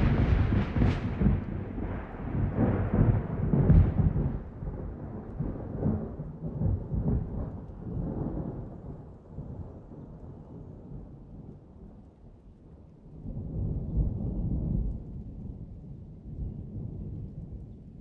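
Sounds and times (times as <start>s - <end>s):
low rumbling noise: 0.0s - 6.0s.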